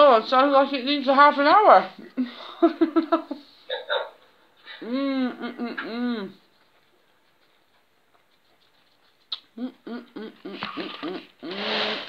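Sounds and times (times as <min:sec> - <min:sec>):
woman humming with full mouth: 0:04.8 - 0:06.4, 0:09.5 - 0:11.8.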